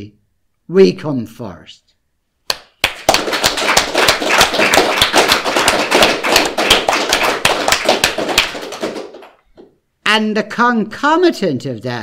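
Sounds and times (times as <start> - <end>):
people clapping: 2.5 - 9.7.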